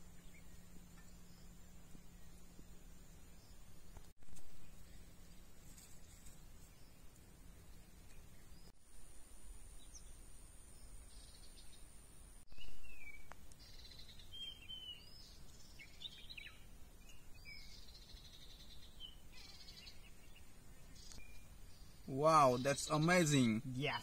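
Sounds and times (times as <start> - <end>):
birds chirping: 9.8 - 24.0.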